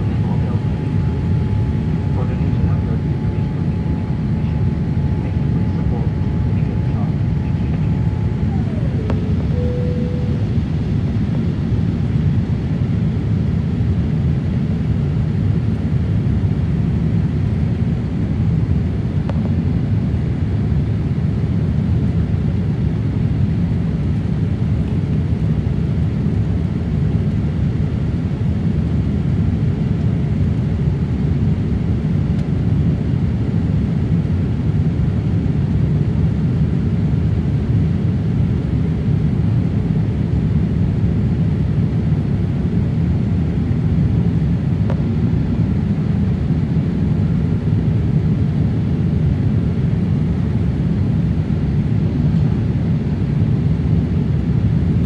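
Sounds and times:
jet engines rumbling: 0:00.0 - 0:30.6.

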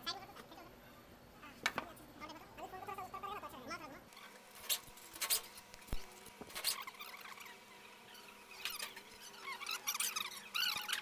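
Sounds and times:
thin high squeaks: 0:06.5 - 0:11.0.

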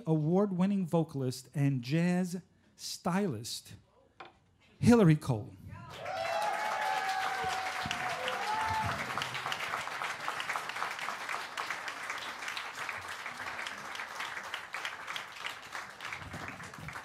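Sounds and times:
audience applauding: 0:05.9 - 0:17.0.

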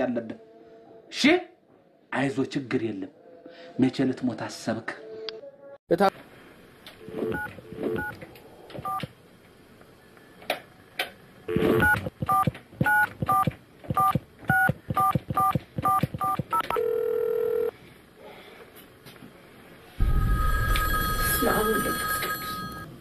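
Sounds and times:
steady telephone tone: 0:15.9 - 0:17.7, 0:20.0 - 0:23.0.

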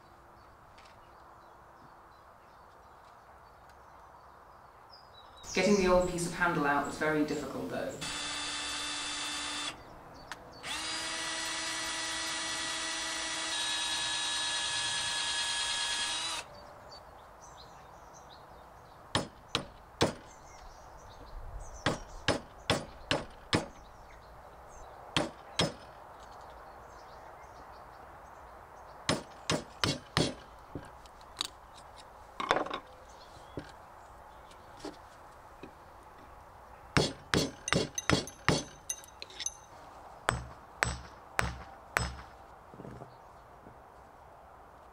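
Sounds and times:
cordless drill boring into wood: 0:08.0 - 0:09.8, 0:10.6 - 0:16.5
chisel knocks: 0:37.0 - 0:39.6, 0:40.3 - 0:43.1.

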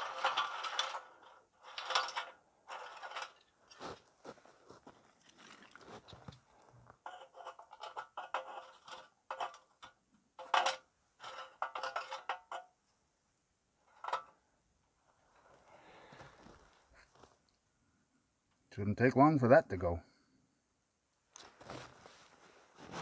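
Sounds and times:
soft rustle: 0:02.7 - 0:07.2, 0:15.1 - 0:17.6, 0:21.3 - 0:23.0.

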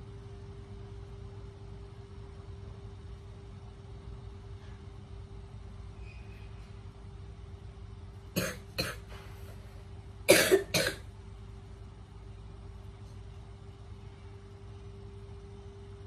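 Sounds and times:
person coughing: 0:08.4 - 0:09.2, 0:10.3 - 0:11.1.

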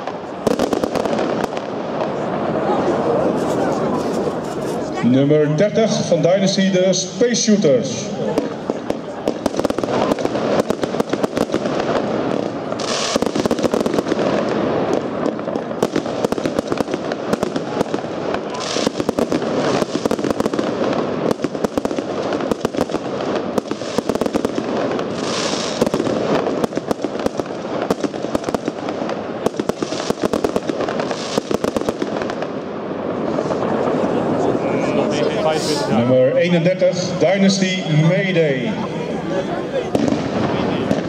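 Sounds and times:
firework shots and crackling: 0:00.0 - 0:02.6, 0:07.2 - 0:34.5, 0:39.8 - 0:41.0
firework hissing flare: 0:08.3 - 0:34.6.

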